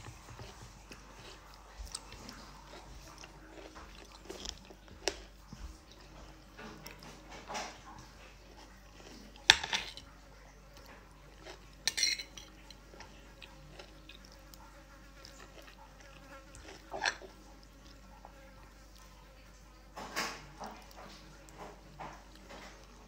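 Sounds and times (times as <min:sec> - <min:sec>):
fork scraping ceramic plate: 0:16.5 - 0:17.4.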